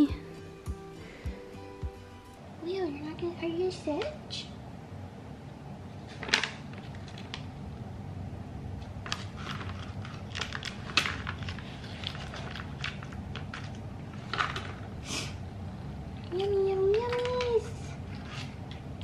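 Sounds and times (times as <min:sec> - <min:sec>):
plastic pouch crinkling: 0:09.1 - 0:14.8.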